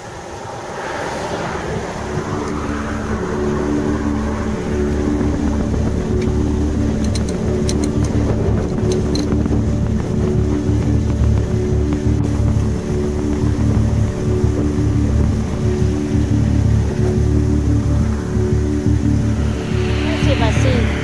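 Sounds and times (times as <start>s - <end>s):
steady low hum: 0.0s - 21.0s
wind buffeting microphone: 0.0s - 21.0s.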